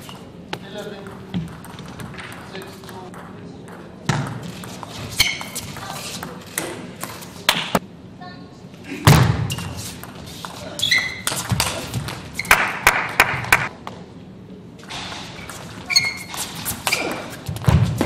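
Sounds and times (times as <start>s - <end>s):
shoes squeaking on floor: 4.6s - 6.4s, 9.4s - 12.6s, 15.2s - 18.0s.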